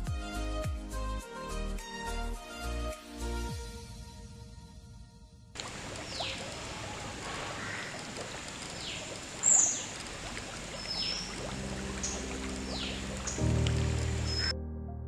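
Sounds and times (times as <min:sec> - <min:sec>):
background music: 0:00.0 - 0:05.4, 0:11.4 - 0:15.0
water running and splashing: 0:05.6 - 0:14.5
high falling chirps: 0:12.0 - 0:14.5.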